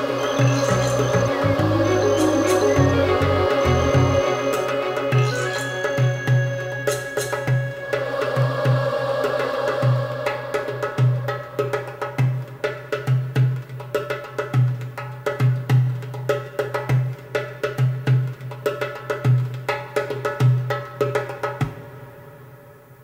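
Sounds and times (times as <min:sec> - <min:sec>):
music with clattering percussion: 0:00.0 - 0:08.0, 0:12.1 - 0:21.8
pulsing bass note: 0:00.6 - 0:04.5.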